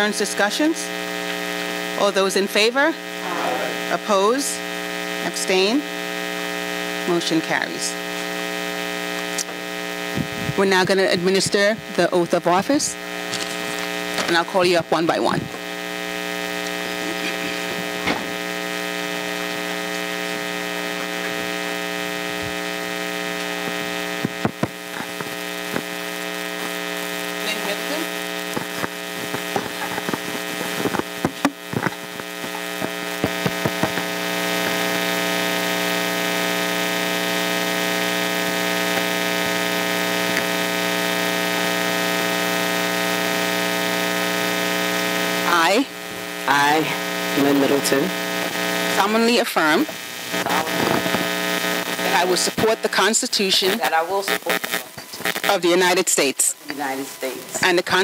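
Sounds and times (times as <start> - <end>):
electrical mains hum: 0.0 - 58.0.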